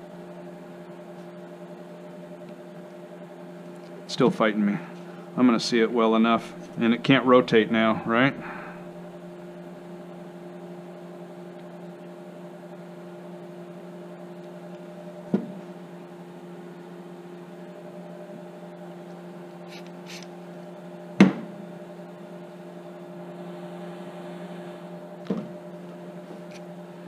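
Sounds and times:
low electrical hum: 0.0 - 27.0
objects knocking on workbench: 15.3 - 15.6, 21.2 - 21.6, 25.3 - 25.5.

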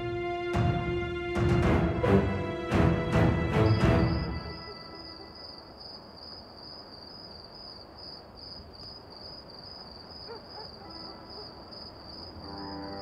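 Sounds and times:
faint low background noise: 0.0 - 13.0
crickets chirping: 3.4 - 13.0.

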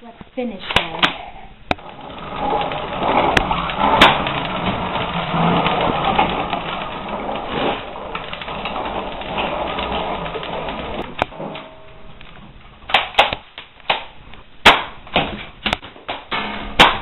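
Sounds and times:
plastic wheels rattling on floor: 1.7 - 17.0
sharp plastic clacks: 12.2 - 17.0.

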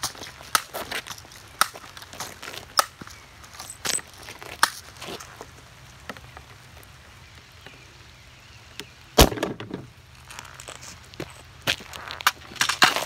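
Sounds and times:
bb gun shot crack: 9.2 - 9.9
plastic bricks clattering: 9.2 - 9.9.

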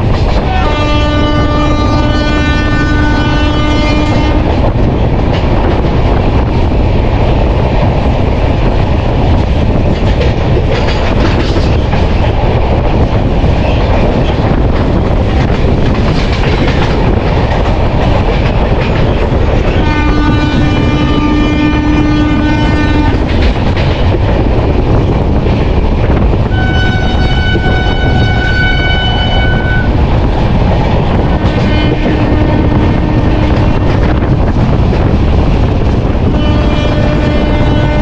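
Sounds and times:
train wheels rumbling and clattering: 0.0 - 38.0
locomotive horn blast: 0.4 - 4.5, 19.7 - 23.2, 26.5 - 30.0, 31.5 - 33.8, 36.3 - 38.0.

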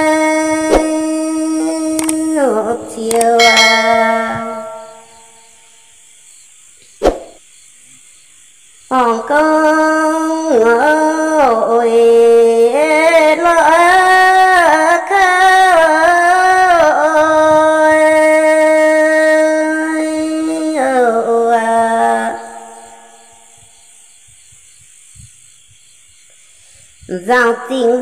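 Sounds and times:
woman singing unaccompanied: 0.0 - 5.4, 8.9 - 23.3, 27.1 - 28.0.

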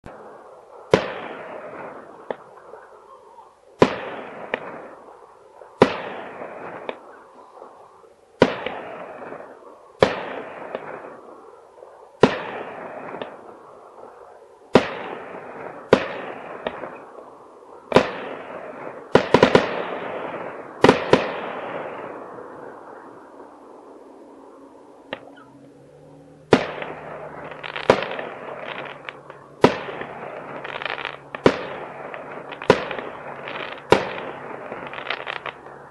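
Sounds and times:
fireworks bangs with echo: 0.1 - 23.9, 26.4 - 35.9
small firework pops: 2.2 - 2.5, 3.8 - 4.8, 5.8 - 7.0, 10.0 - 11.1, 12.2 - 13.4, 15.9 - 17.1, 26.5 - 35.7.

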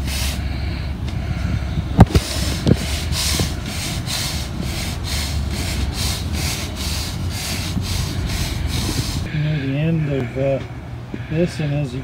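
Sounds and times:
push broom scraping asphalt: 2.0 - 9.3.

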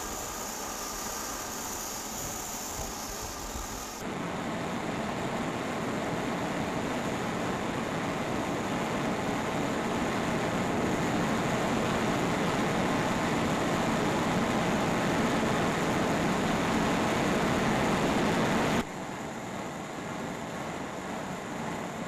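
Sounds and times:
steam locomotive machinery roar: 0.0 - 4.0.

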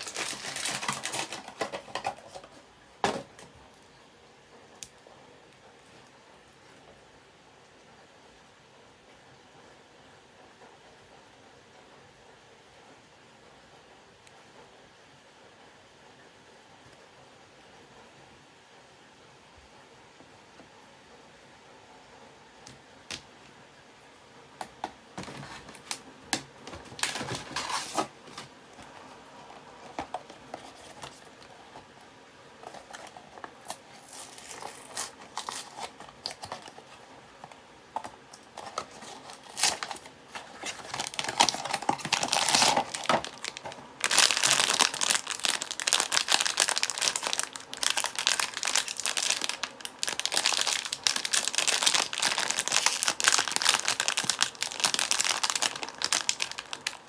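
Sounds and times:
foil wrapper crinkling and tearing: 0.0 - 2.5, 26.6 - 28.5, 32.6 - 37.0, 38.0 - 57.0.

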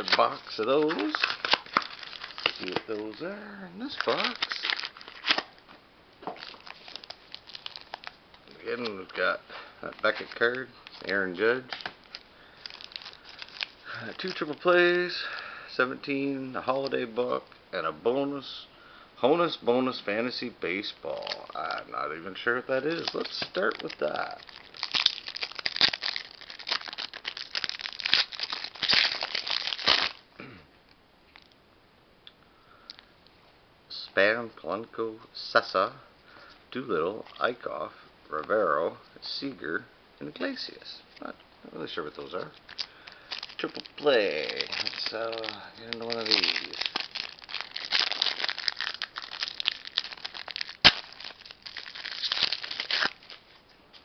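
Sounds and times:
wrapper crinkling as torn open: 0.0 - 3.2, 3.8 - 5.6, 6.4 - 9.0, 10.0 - 15.1, 22.7 - 30.2, 42.2 - 53.6.

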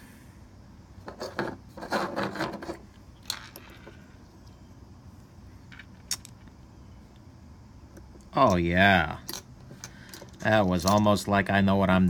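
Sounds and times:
rustling and scraping: 1.0 - 4.6.

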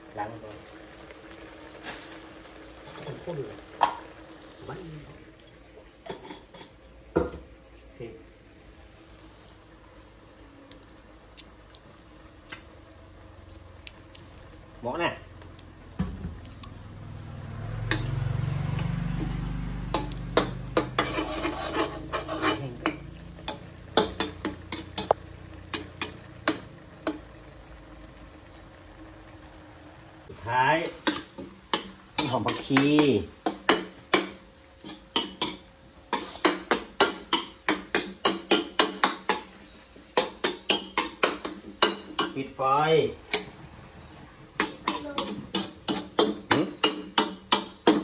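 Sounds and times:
spatula scraping a steel wok: 6.0 - 6.9, 19.9 - 26.6, 33.5 - 42.3, 44.6 - 48.0.

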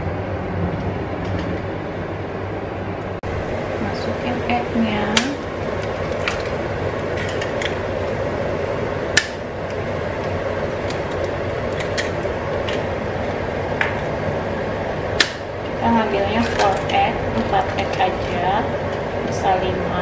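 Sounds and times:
eggs cracking: 5.2 - 8.2, 9.1 - 14.2.

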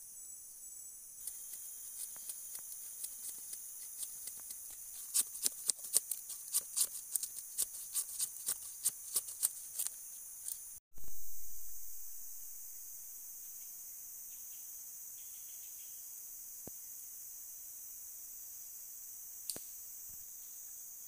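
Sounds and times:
insect chirring: 0.0 - 21.0.

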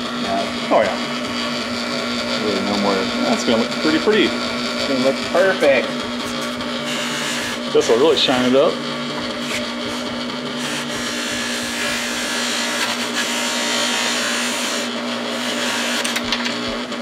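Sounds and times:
bench buffer humming: 0.0 - 17.0.

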